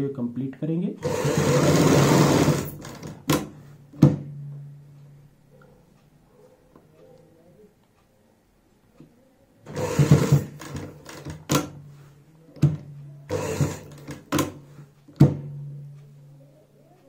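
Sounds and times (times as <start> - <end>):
sewing machine motor humming: 1.0 - 3.2, 9.6 - 11.5, 13.3 - 14.5
sewing machine stitching: 1.0 - 3.4, 9.7 - 11.7, 13.3 - 14.6.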